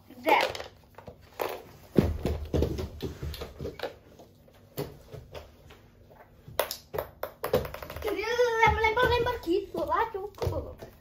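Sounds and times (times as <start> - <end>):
plastic toys clicking on wooden floor: 0.2 - 1.6, 6.6 - 8.2.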